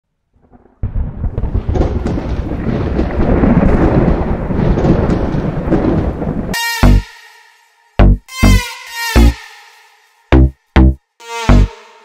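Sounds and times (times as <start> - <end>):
thunder-like rumble: 0.4 - 6.6.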